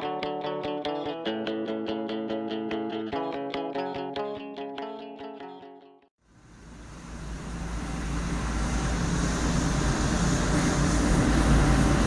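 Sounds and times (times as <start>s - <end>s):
gas turbine rumble with whine: 6.3s - 12.0s.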